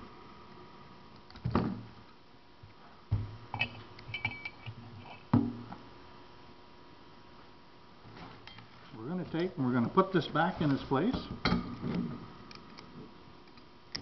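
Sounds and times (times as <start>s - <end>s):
light ringing metal clinks: 3.6s - 4.7s.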